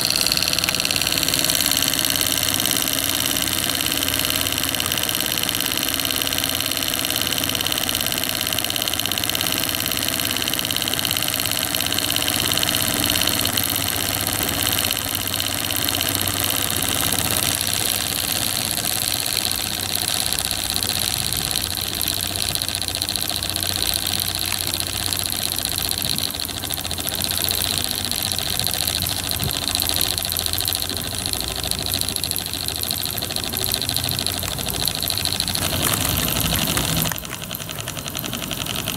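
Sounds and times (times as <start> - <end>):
model steam engine running: 0.0 - 38.9.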